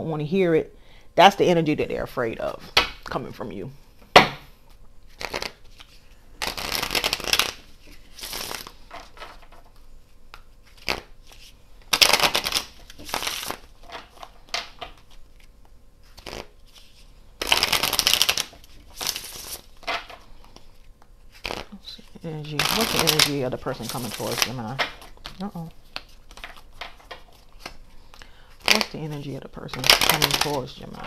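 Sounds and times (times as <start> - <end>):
cards being shuffled: 4.6 - 31.0.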